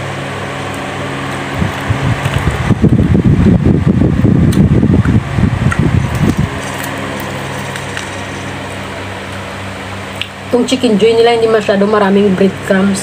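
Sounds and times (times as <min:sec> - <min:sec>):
steady mechanical hum: 0:00.0 - 0:13.0
chewing crispy food: 0:05.7 - 0:09.4.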